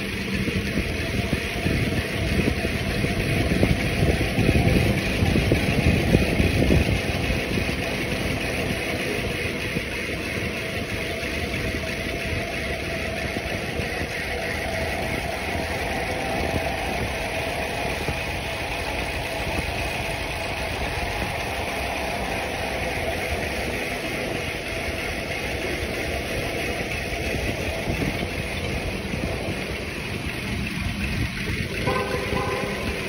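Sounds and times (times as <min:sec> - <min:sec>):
wind rushing over microphone: 0:00.0 - 0:08.8
bicycle tyre rumble on concrete: 0:00.0 - 0:33.0.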